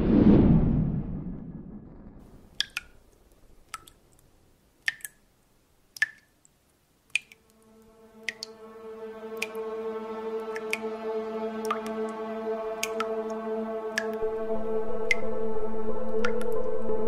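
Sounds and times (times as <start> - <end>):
whoosh: 0.0 - 2.2
water drips plinking: 2.2 - 8.7, 9.3 - 9.7, 10.4 - 11.0, 11.6 - 12.2, 12.8 - 14.2, 15.0 - 15.3, 16.1 - 16.7
held music chord: 7.5 - 17.0.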